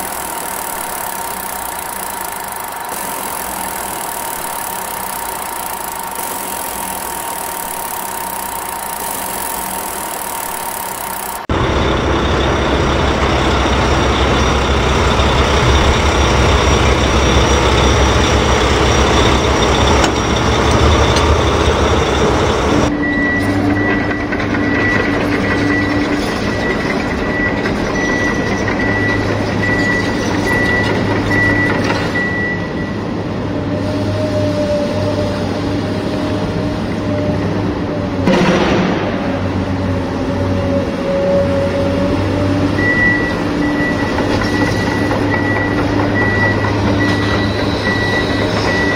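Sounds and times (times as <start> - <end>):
high repeating beep: 0.0 - 11.5
heavy vehicle engine running: 0.0 - 48.9.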